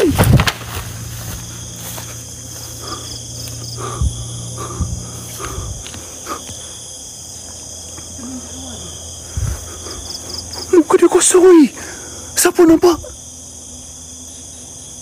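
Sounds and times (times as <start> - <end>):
low hum: 0.0 - 10.5
crickets and night insects: 0.0 - 15.0.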